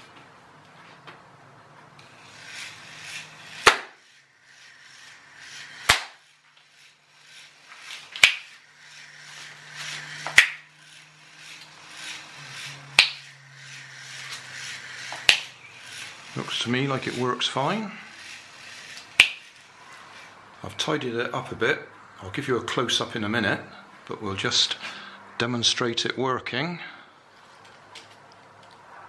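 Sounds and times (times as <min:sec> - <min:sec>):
small electric motor humming: 0:01.8 - 0:21.0.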